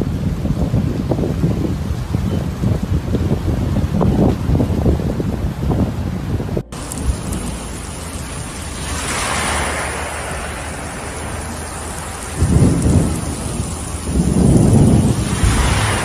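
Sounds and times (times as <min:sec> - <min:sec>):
heavy rain pouring: 0:00.0 - 0:16.0
deep rumbles: 0:00.1 - 0:16.0.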